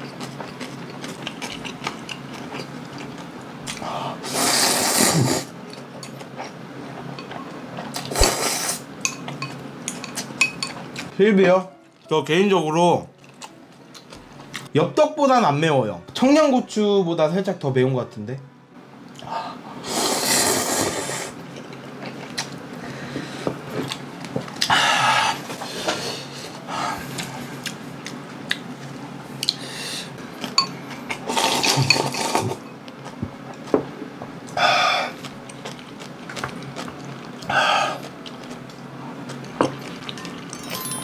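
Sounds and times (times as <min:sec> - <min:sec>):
noodles slurped: 0:31.2 - 0:32.6
wet chewing and lip-smacking: 0:35.2 - 0:40.3.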